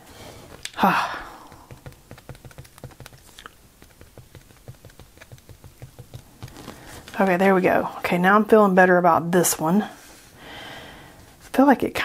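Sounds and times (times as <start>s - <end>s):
marker tip tapping on paper: 1.4s - 6.8s.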